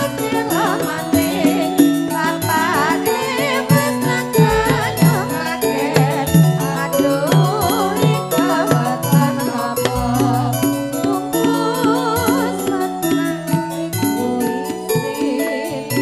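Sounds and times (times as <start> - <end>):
person singing ornamented melody: 0.0 - 16.0
drum beat: 3.8 - 5.4.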